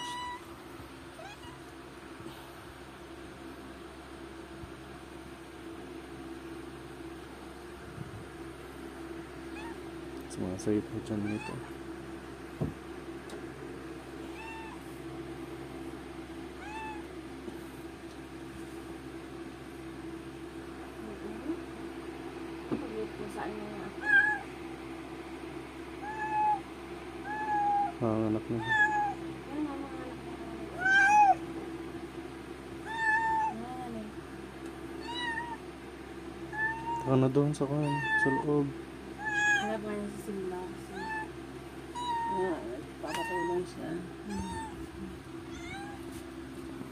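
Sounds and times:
cat meowing: 0:00.0 - 0:00.5, 0:01.1 - 0:01.7, 0:09.5 - 0:09.8, 0:11.2 - 0:11.7, 0:14.2 - 0:14.8, 0:16.6 - 0:17.1, 0:24.0 - 0:24.5, 0:26.0 - 0:26.6, 0:27.2 - 0:27.9, 0:28.6 - 0:29.2, 0:30.8 - 0:31.4, 0:32.8 - 0:33.6, 0:35.0 - 0:35.6, 0:36.5 - 0:37.1, 0:37.8 - 0:38.5, 0:39.2 - 0:39.7, 0:40.9 - 0:41.3, 0:41.9 - 0:42.4, 0:43.1 - 0:43.6, 0:44.2 - 0:46.1.

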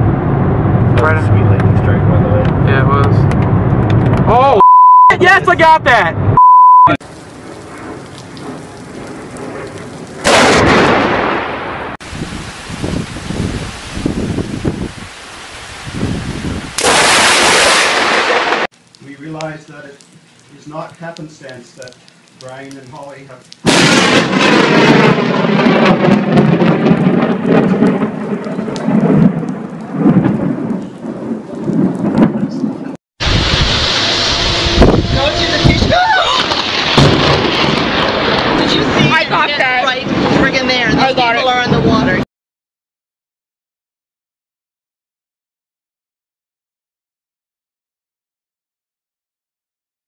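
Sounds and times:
heavy rain falling: 0:07.0 - 0:42.2
loud thunderclap: 0:07.5 - 0:15.0, 0:15.9 - 0:18.7, 0:23.6 - 0:42.2.

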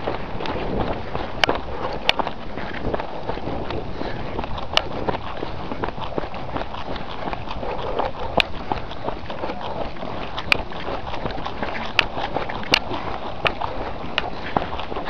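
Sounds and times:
footsteps running on dirt: 0:00.0 - 0:15.0.

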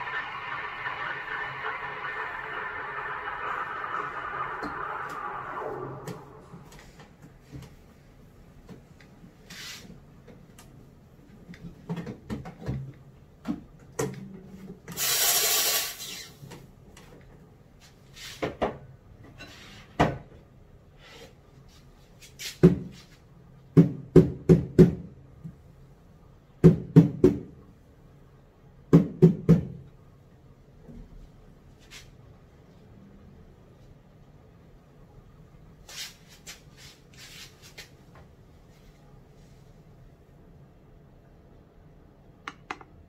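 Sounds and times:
steam wand burst of steam: 0:00.0 - 0:06.6, 0:15.0 - 0:16.4.

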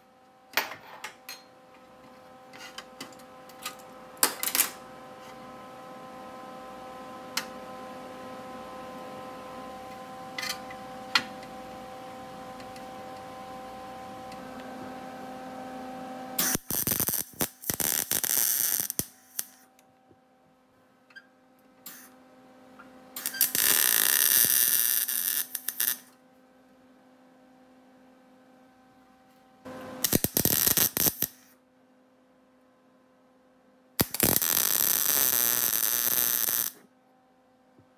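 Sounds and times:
welder arc bursts: 0:16.4 - 0:19.6, 0:23.2 - 0:26.1, 0:30.0 - 0:31.5, 0:34.0 - 0:36.8.

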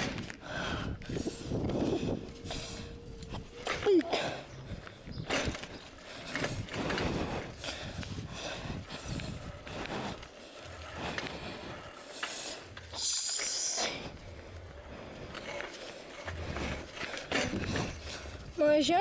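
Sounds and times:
wind buffeting microphone: 0:00.0 - 0:12.9, 0:14.0 - 0:19.0
bicycle tyres on paving blocks: 0:00.0 - 0:19.0
bike rattling: 0:00.0 - 0:19.0.

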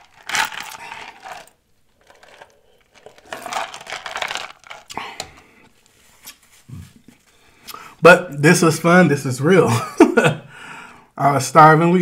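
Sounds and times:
ice cubes clinking in plastic cup: 0:00.0 - 0:05.0.

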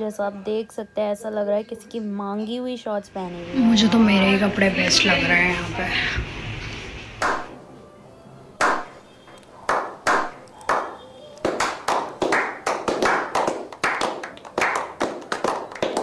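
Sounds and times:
people clapping: 0:07.2 - 0:07.5, 0:08.6 - 0:09.0, 0:09.7 - 0:16.0.

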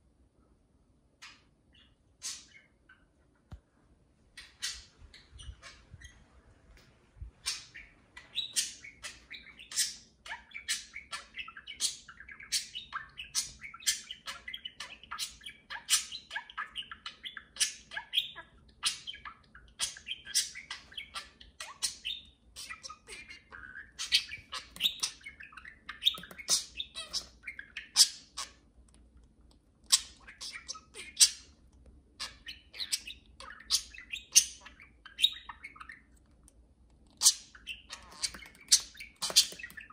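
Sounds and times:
budgerigars chattering and warbling: 0:01.2 - 0:03.1, 0:04.4 - 0:06.2, 0:07.4 - 0:28.7, 0:29.9 - 0:31.6, 0:32.2 - 0:36.1, 0:37.2 - 0:39.9.

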